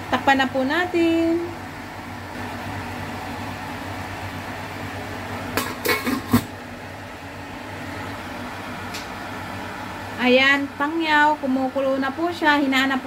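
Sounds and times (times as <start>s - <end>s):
metal lid clinking on wok: 5.6s - 6.5s.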